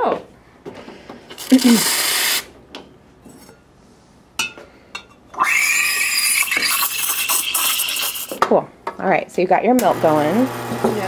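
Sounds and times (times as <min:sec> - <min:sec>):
steam wand hissing: 0:05.6 - 0:08.4.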